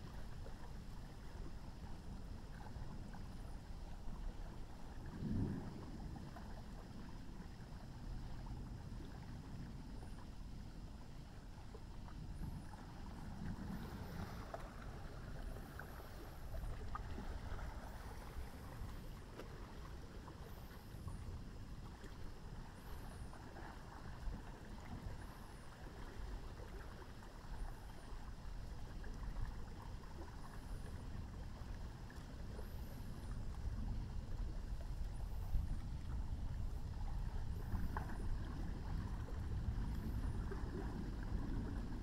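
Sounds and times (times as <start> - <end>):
wind: 0.0 - 42.0.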